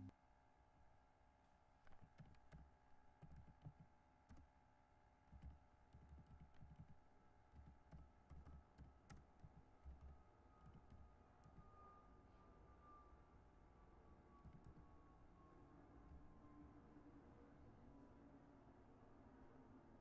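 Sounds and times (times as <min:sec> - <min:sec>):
typing on computer keyboard: 0:01.8 - 0:04.5, 0:05.3 - 0:11.7, 0:14.4 - 0:14.9.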